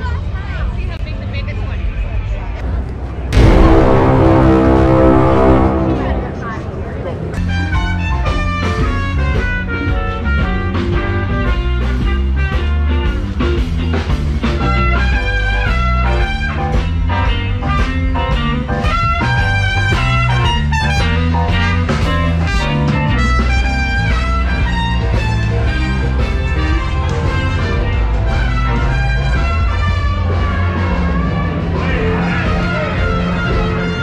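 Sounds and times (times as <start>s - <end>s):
guitar: 3.3s - 34.0s
loud music with heavy bass: 3.4s - 6.8s.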